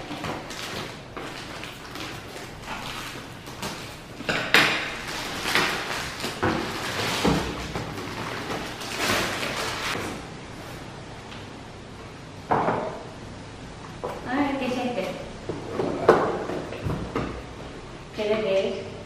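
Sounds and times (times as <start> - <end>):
plastic bag ripping: 0.0 - 10.0
plastic crinkling: 0.0 - 10.0
scissors cutting plastic bag: 0.0 - 10.0.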